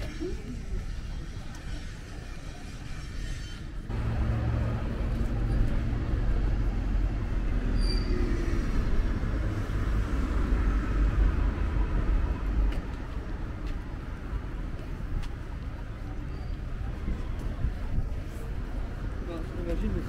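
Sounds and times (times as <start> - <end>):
road traffic engines rumbling: 0.0 - 20.0.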